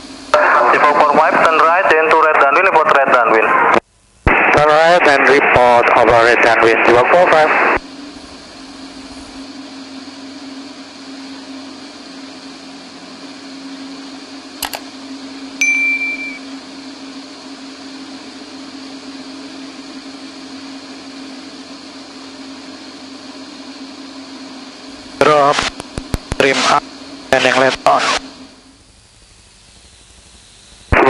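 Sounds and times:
aircraft engine drone: 7.3s - 31.0s
single click: 14.6s - 14.9s
short high beep: 15.6s - 16.4s
intercom hiss: 25.2s - 28.4s.

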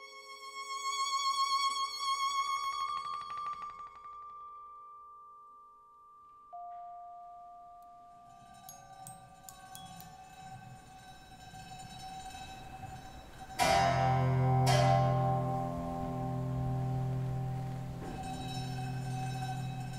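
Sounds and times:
ringing note: 4.4s - 19.9s.

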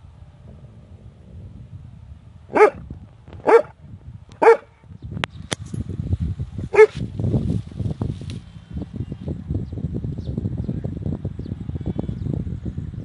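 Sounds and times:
dog barking: 2.5s - 2.8s, 3.4s - 3.7s, 4.4s - 4.7s, 6.7s - 7.0s.

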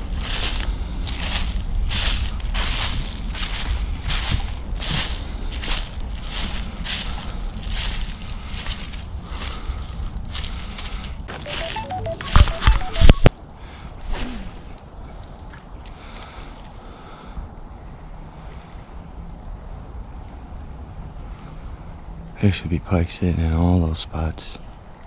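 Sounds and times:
footsteps crunching on dry ground: 0.0s - 11.8s.

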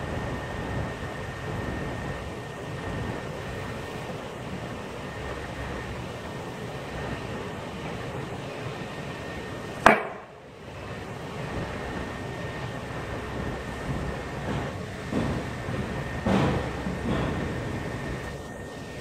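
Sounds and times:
steady background hum: 0.0s - 19.0s
steel weight striking bamboo: 9.8s - 10.3s.

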